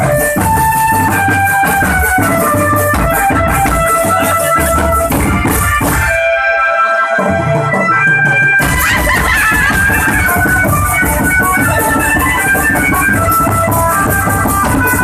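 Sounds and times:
bass and snare drums beating: 0.0 - 6.3, 8.6 - 15.0
held melody notes: 0.0 - 15.0.

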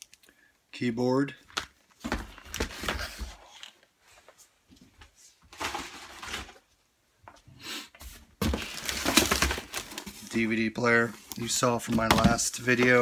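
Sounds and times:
rustling and scraping in cardboard box: 8.1 - 10.4.

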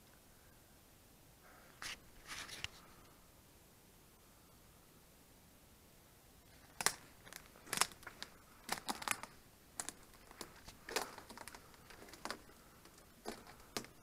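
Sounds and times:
branches snapping and brushing: 6.5 - 14.0.

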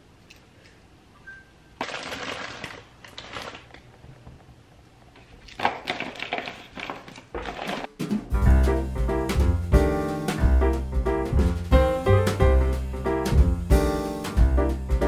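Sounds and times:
candy wrappers crinkling: 1.8 - 4.0, 5.4 - 8.0
piano music with a beat: 8.0 - 15.0.

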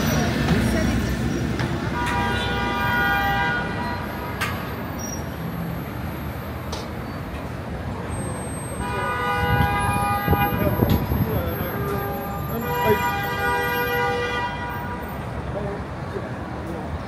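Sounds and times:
city street traffic: 0.0 - 17.0
car horn honking: 1.9 - 4.3, 8.8 - 15.2.

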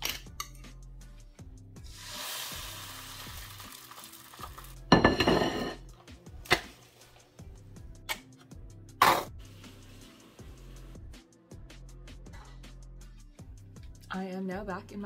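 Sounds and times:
egg sizzling in frying pan: 1.9 - 5.0
ceramic plate clattering: 4.9 - 5.8.

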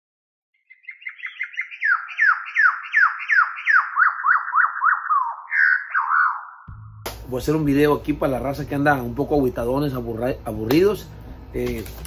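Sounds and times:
electronic descending whistle chirps: 1.7 - 7.0.

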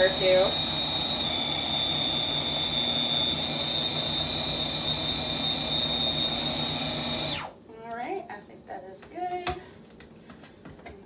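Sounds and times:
food processor high whine: 0.0 - 7.6.

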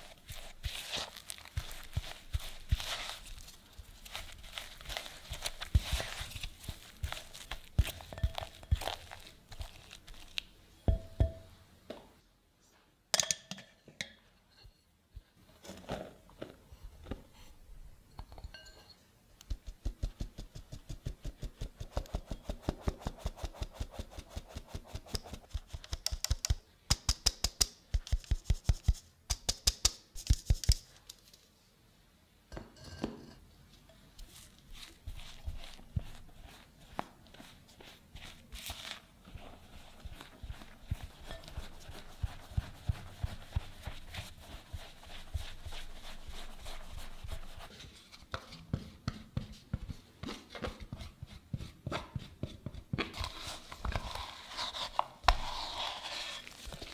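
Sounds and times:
spatula scraping dough in glass bowl: 4.1 - 10.3, 34.2 - 47.8, 53.1 - 56.9.

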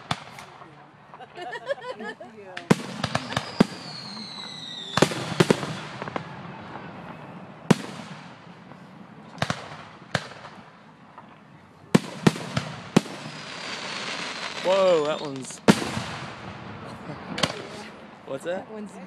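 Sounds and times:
fireworks shells bursting: 2.6 - 7.1, 12.0 - 16.4
falling firework whistle: 3.0 - 7.3.

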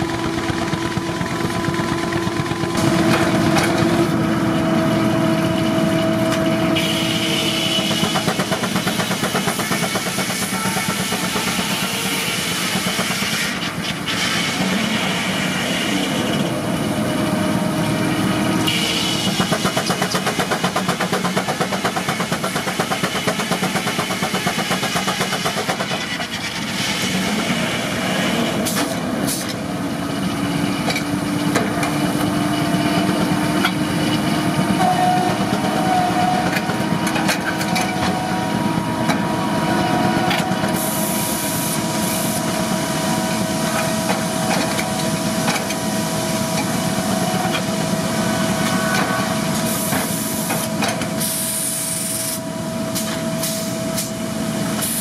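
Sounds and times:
air hiss bursts: 40.7 - 42.5, 49.5 - 52.4, 53.0 - 54.1, 54.8 - 55.0.

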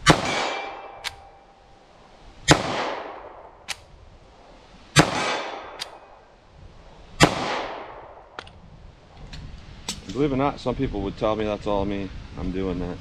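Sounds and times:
pistol shots echoing: 0.0 - 1.4, 2.5 - 3.5, 5.0 - 6.1, 7.2 - 8.1.

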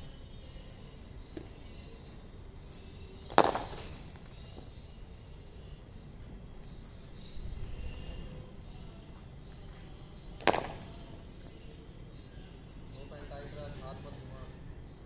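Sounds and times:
cricket bat striking ball: 3.3 - 4.0, 10.4 - 10.9.

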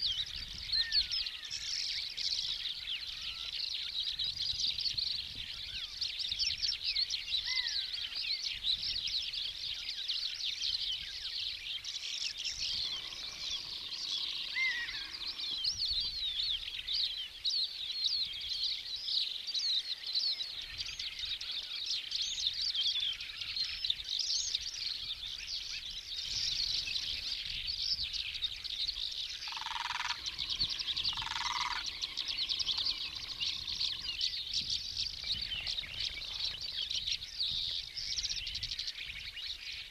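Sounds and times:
small birds chirping and trilling: 0.0 - 39.9
harsh bird calls: 11.1 - 17.2, 20.3 - 39.9.

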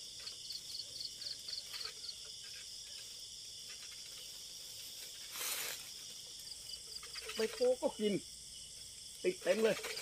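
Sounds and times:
crickets trilling: 0.0 - 10.0
brief rustle: 3.7 - 6.2.

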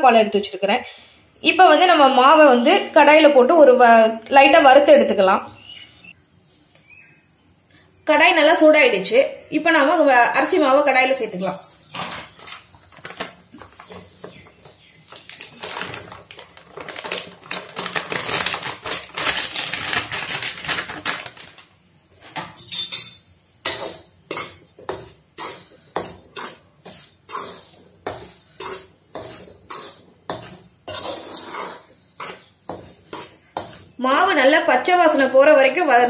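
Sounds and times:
metal spoon scraping metal pan: 22.6 - 34.4.

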